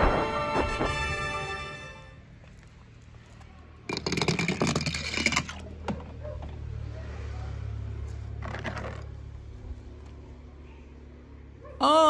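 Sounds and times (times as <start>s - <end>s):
dense clatter of clicks: 3.9s - 5.6s.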